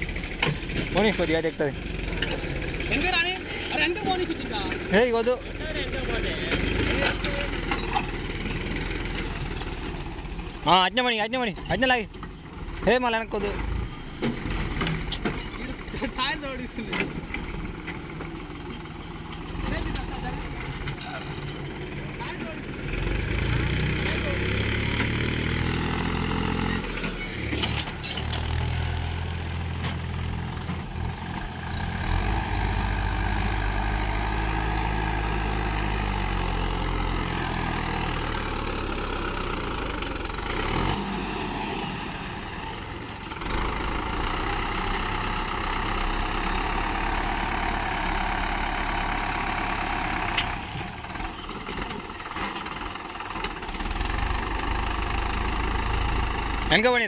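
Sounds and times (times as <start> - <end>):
tractor diesel engine straining: 0.0 - 57.0.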